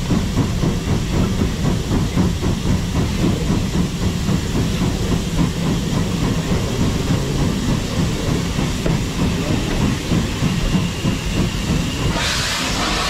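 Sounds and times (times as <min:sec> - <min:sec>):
steam hissing: 0:00.0 - 0:13.0
train wheels rumbling on rails: 0:00.0 - 0:13.0.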